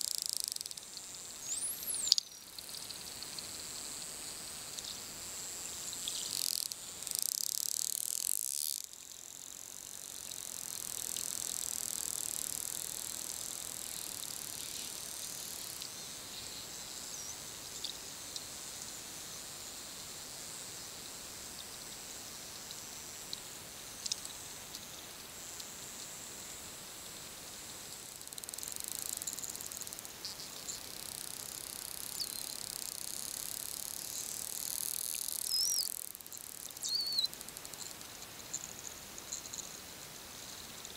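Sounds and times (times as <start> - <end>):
high-pitched underwater hiss: 0.0 - 40.9
dolphin whistles: 36.8 - 37.3.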